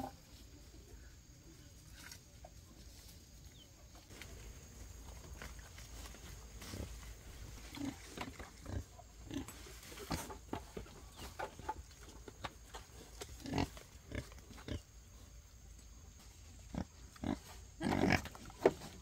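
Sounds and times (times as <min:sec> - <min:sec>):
pigs grunting: 0:13.1 - 0:14.9, 0:16.6 - 0:18.6.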